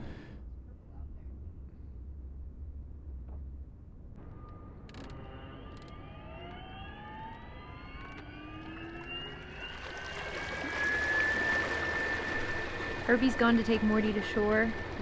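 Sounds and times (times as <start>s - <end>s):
electric outboard motor whine: 4.2s - 15.0s.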